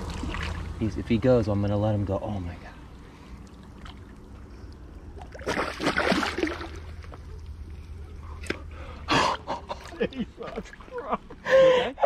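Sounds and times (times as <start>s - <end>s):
water splashing against rocks: 0.0s - 0.8s, 5.1s - 7.2s
fish splashing at surface: 5.1s - 7.1s.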